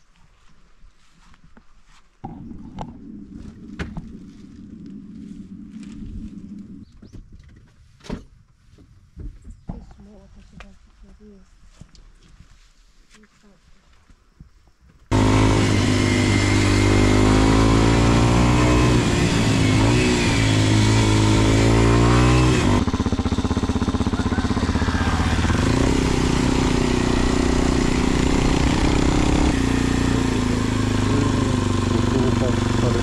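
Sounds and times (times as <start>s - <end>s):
motorcycle engine running: 15.1s - 33.0s.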